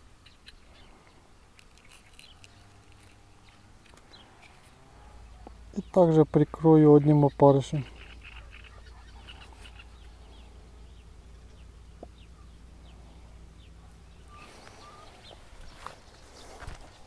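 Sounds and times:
low steady hum: 0.0s - 17.0s
rustling and light clicks: 1.5s - 4.8s
short bird chirps: 14.2s - 16.5s.

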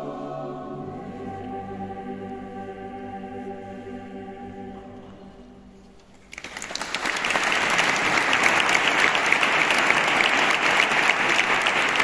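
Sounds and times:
choir singing chord: 0.0s - 6.0s
audience applause: 6.3s - 12.0s.

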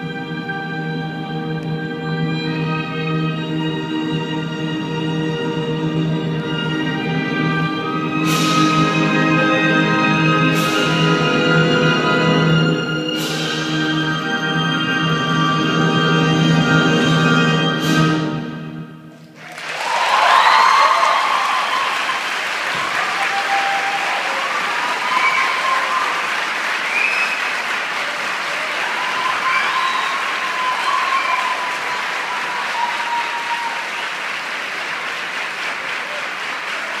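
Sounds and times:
orchestral music: 0.0s - 19.3s
shouted cheers: 19.4s - 34.2s
audience applauding: 19.4s - 37.0s.

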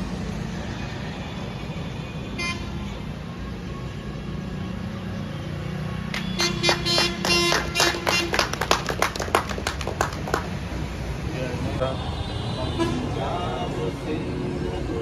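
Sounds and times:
road traffic rumble: 0.0s - 15.0s
vehicle horn toot: 2.4s - 2.8s, 6.2s - 8.5s, 11.9s - 13.1s.

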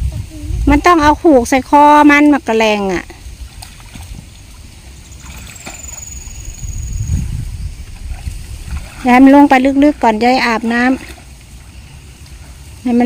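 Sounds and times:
water sloshing: 1.6s - 13.0s
low rumble: 3.0s - 11.7s
thin high whistle: 5.1s - 8.7s.

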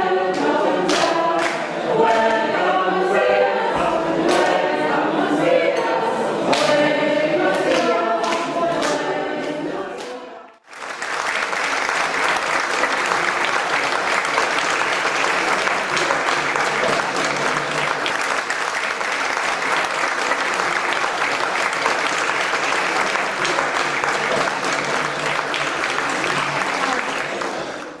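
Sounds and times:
group of voices singing: 0.0s - 10.6s
hands clapping along in rhythm: 0.0s - 28.0s
audience applause: 10.6s - 28.0s.

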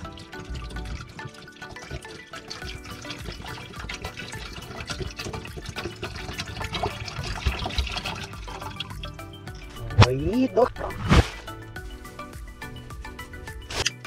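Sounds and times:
water bubbling in a pot: 0.0s - 10.6s.

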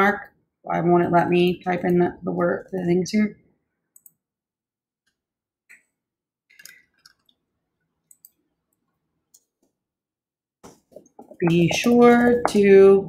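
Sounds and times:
faint computer mouse clicks: 8.1s - 8.4s.

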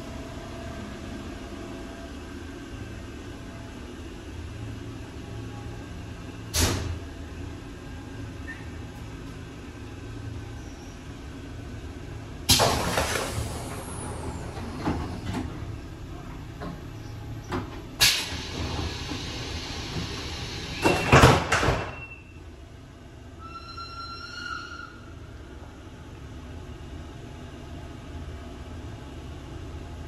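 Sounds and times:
air hiss of train doors: 6.5s - 7.0s, 12.5s - 15.6s, 17.6s - 22.0s
doors closing with heavy thumps: 20.8s - 22.0s.

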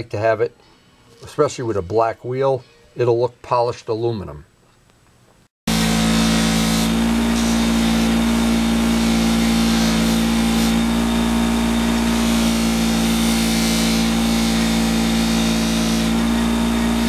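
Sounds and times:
bench buffer motor hum: 5.7s - 17.0s.

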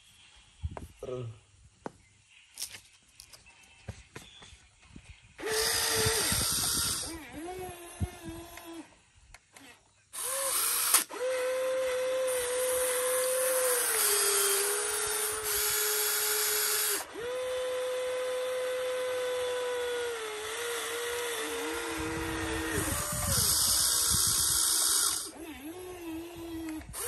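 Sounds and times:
electric motors whining: 5.4s - 8.9s, 9.5s - 27.0s.

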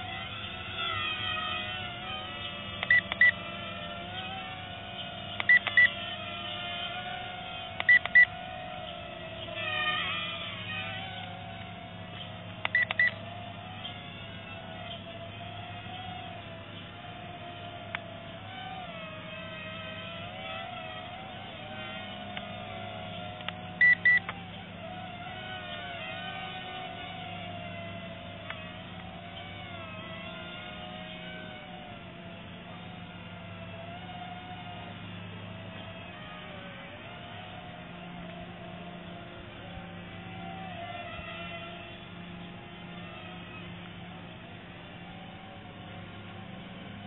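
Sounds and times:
toy drone motors whining: 0.0s - 47.0s
click: 2.8s - 3.3s
faint clicks: 2.8s - 3.4s, 5.3s - 5.9s, 7.8s - 8.3s, 11.6s - 13.2s, 17.9s - 18.1s, 22.3s - 22.5s, 23.3s - 24.4s.

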